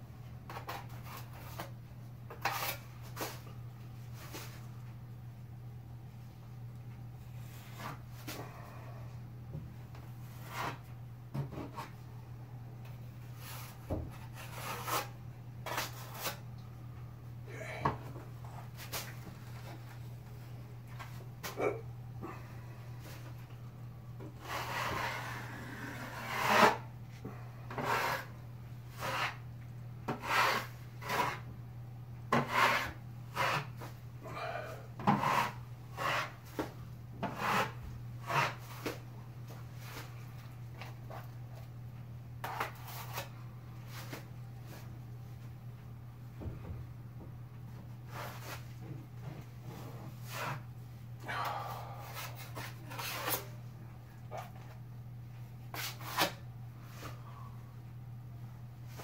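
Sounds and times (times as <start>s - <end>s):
steady low hum: 0.0s - 59.0s
taping knife scraping ceiling: 2.4s - 2.8s, 13.5s - 16.4s, 24.4s - 26.9s, 27.7s - 29.4s, 30.1s - 31.5s, 32.3s - 33.8s, 35.0s - 36.6s, 37.2s - 39.0s, 52.2s - 53.6s, 55.7s - 56.4s.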